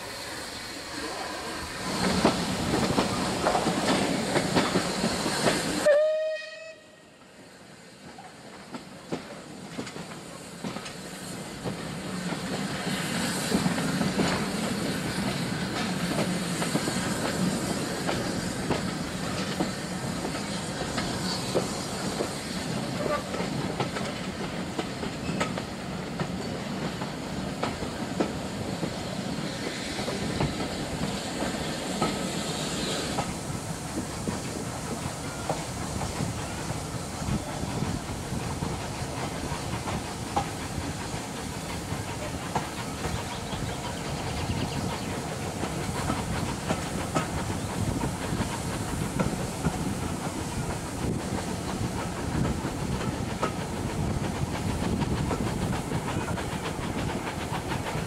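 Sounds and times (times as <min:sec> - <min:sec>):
steam hissing: 0:00.0 - 0:06.4, 0:07.0 - 0:58.0
train running noise: 0:00.0 - 0:58.0
wheels clicking over rail joints: 0:08.6 - 0:29.0, 0:37.3 - 0:58.0.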